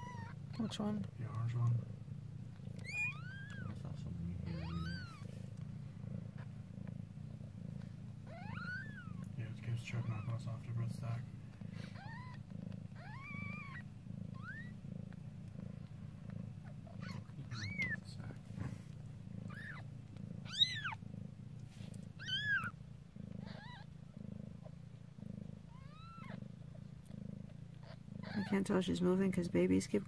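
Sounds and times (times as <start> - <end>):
kittens mewing: 0.0 - 0.5, 2.5 - 28.9
cat purring: 0.0 - 30.0.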